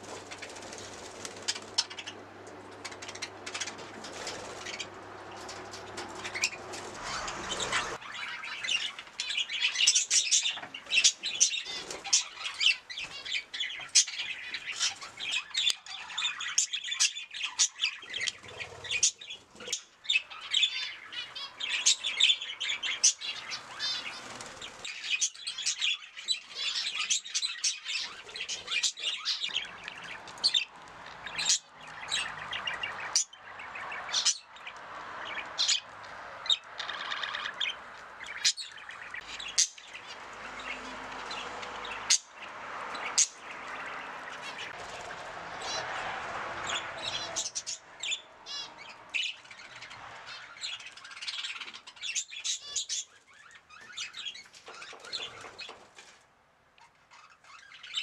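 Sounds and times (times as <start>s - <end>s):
budgerigars chattering: 6.2s - 34.5s, 35.2s - 44.8s.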